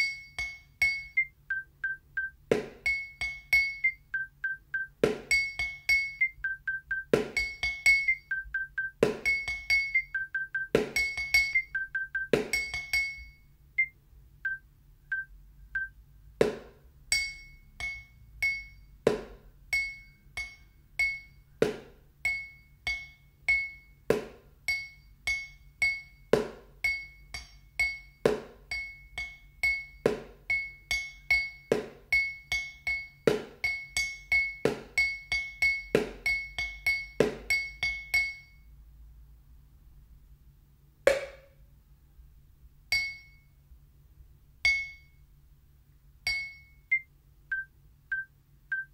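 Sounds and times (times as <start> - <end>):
sticks drumming on glass and plastic: 0.0 - 13.9, 15.8 - 38.7, 41.1 - 41.6, 42.9 - 43.4, 44.7 - 45.2, 46.3 - 48.9
metronome clicking: 0.0 - 16.0, 46.3 - 48.9.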